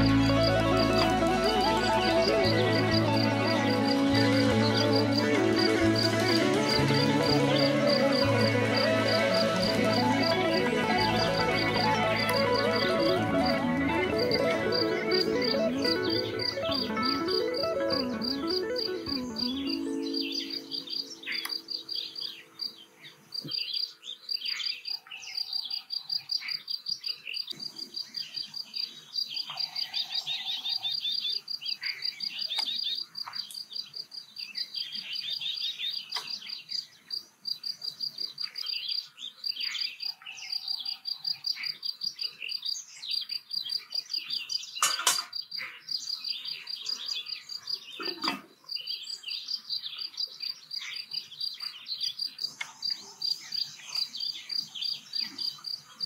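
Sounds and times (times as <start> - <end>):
birds chirping and calling: 0.0 - 37.2.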